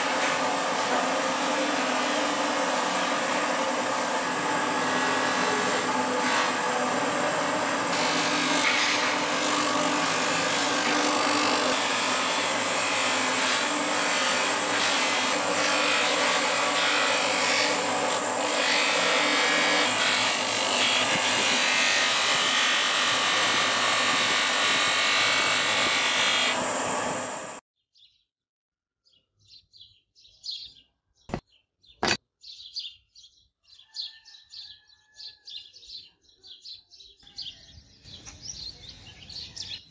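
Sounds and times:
buffing wheel whirring on metal: 0.0s - 27.6s.

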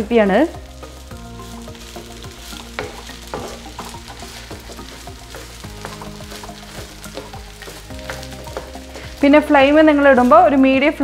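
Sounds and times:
light sizzle of frying: 0.0s - 11.0s
wooden spatula striking a wok: 1.7s - 9.3s.

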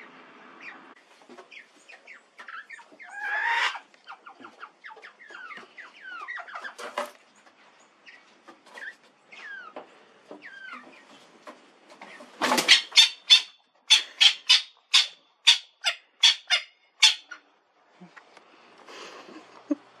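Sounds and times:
spurfowl calling: 1.5s - 6.8s, 12.5s - 17.4s.

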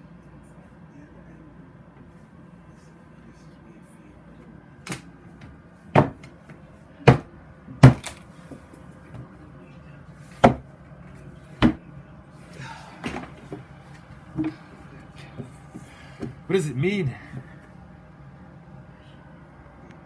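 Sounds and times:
sharp knocks on wood: 6.0s - 6.3s, 7.1s - 8.1s, 10.4s - 10.6s.

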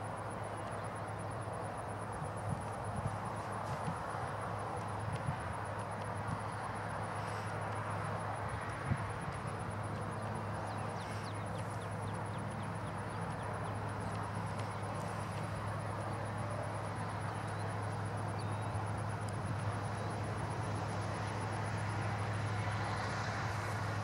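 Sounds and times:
diesel locomotive engine hum: 0.0s - 24.0s
insects trilling: 6.2s - 23.9s.

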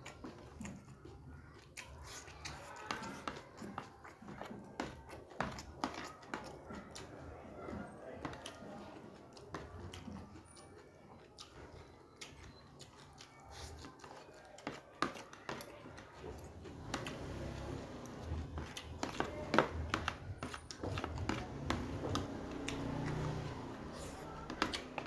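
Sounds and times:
mouth-closed chewing: 0.0s - 25.0s.

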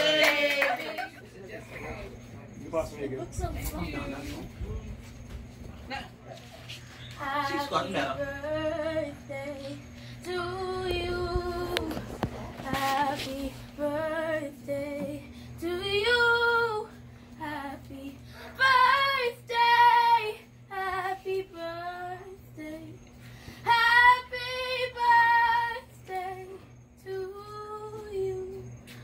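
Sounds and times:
girl singing: 7.2s - 23.0s, 23.6s - 28.6s.

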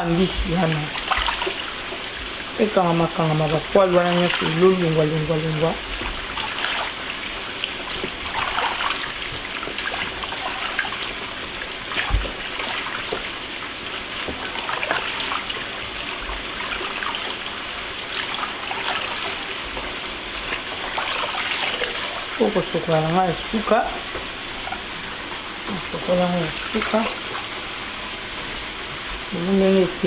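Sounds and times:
water dripping: 0.0s - 23.3s
water sloshing in plastic basin: 0.0s - 23.8s, 26.4s - 27.6s.

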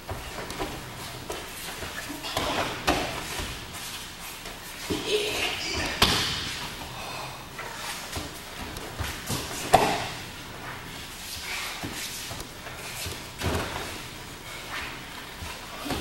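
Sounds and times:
body thudding onto mats: 12.7s - 14.1s.

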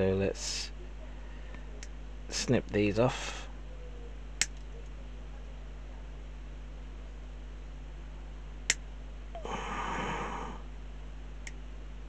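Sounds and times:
person sniffing: 9.4s - 10.6s.

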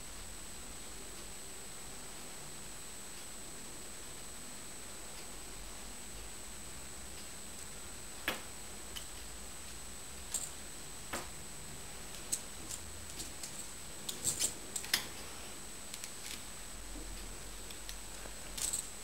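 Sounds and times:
faint high whine: 0.0s - 19.0s.

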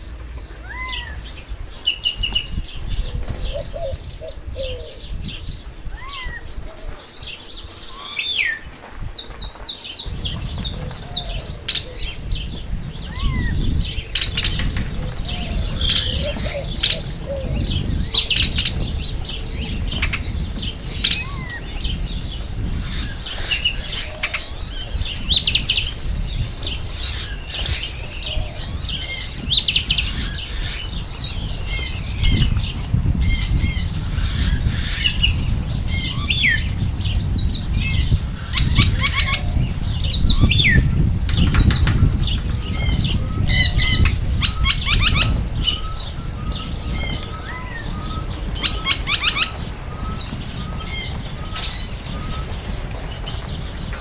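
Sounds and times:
grackle calling: 42.9s - 52.5s.

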